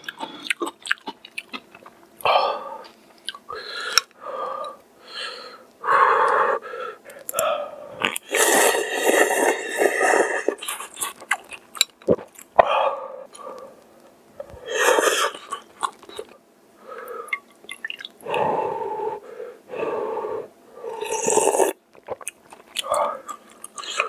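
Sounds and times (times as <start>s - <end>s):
wet chewing: 0.0s - 2.0s, 8.0s - 12.5s, 21.9s - 24.0s
noodle slurping: 8.0s - 11.2s.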